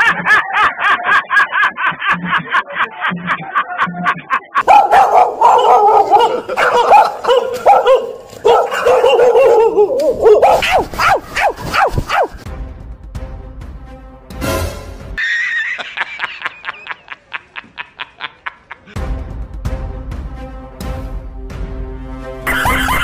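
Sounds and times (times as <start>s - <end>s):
recorded dog barking: 4.6s - 12.4s.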